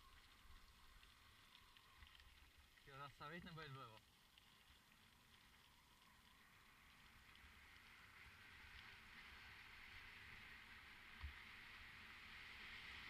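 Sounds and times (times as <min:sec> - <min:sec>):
rushing wind and tyres: 0:06.1 - 0:13.0.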